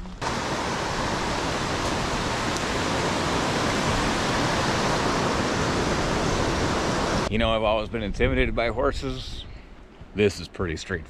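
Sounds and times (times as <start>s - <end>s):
river rushing over stones: 0.2s - 7.3s.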